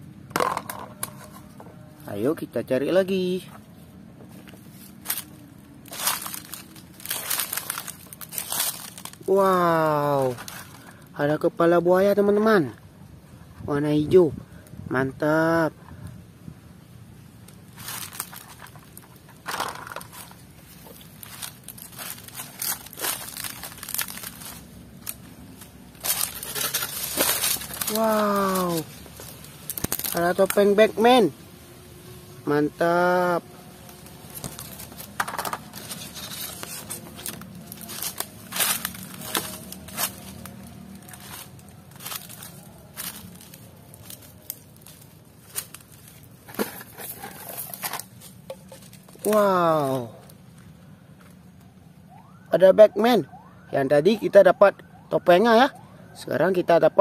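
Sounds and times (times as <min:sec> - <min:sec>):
dry palm fronds rustling: 0:00.8 - 0:11.4, 0:16.8 - 0:51.8
sharp crunches: 0:04.8 - 0:09.3, 0:17.6 - 0:30.6, 0:33.8 - 0:50.3.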